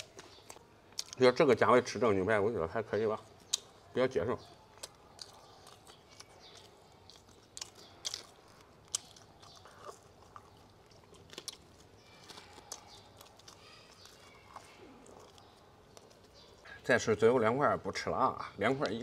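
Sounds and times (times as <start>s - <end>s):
chewing mouth sounds: 0.0s - 1.2s, 3.2s - 3.9s, 4.5s - 16.8s
crust crunching: 4.4s - 16.7s.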